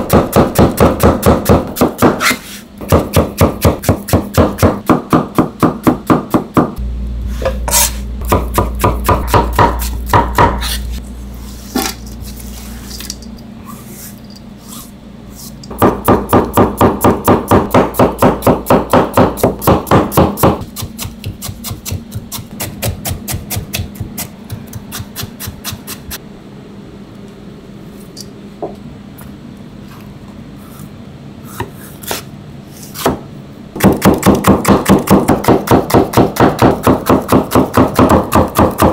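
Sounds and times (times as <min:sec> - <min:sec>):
knife chopping on cutting board: 0:00.0 - 0:06.8, 0:07.5 - 0:10.9, 0:15.7 - 0:26.2, 0:33.8 - 0:38.9.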